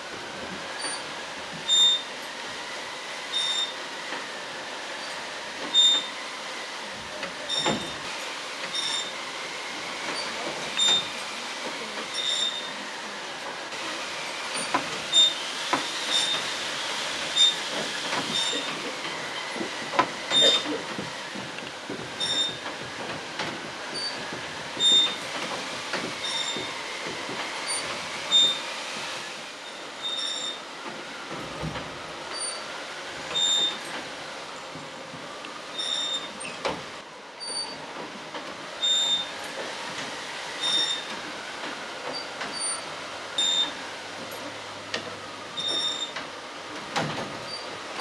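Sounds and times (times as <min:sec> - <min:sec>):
wooden drum sound machine squealing: 0:01.7 - 0:02.1, 0:03.3 - 0:03.8, 0:05.7 - 0:06.2, 0:07.4 - 0:08.0, 0:08.7 - 0:09.2, 0:10.1 - 0:11.1, 0:12.1 - 0:12.7, 0:14.6 - 0:16.5, 0:17.3 - 0:21.4, 0:22.2 - 0:22.8, 0:23.9 - 0:25.3, 0:26.1 - 0:26.8, 0:27.6 - 0:28.6, 0:29.6 - 0:30.6, 0:33.3 - 0:34.0, 0:35.7 - 0:36.7, 0:37.4 - 0:37.8, 0:38.8 - 0:39.3, 0:40.6 - 0:41.1, 0:42.1 - 0:43.8, 0:45.6 - 0:46.2.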